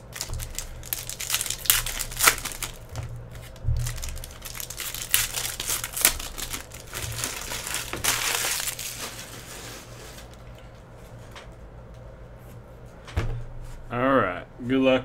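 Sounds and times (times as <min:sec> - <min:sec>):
foil wrapper crinkling: 0:00.0 - 0:10.7.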